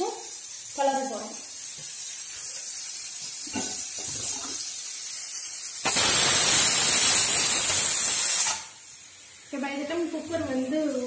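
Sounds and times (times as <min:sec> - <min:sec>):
faint steady steam hiss: 0:00.0 - 0:11.0
pressure cooker steam whistle: 0:05.8 - 0:08.8.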